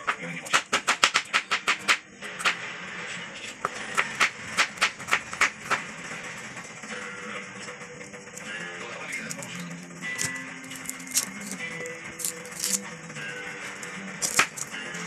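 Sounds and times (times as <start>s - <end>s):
knife chopping on wooden board: 3.6s - 5.8s, 10.2s - 11.6s, 14.2s - 14.8s.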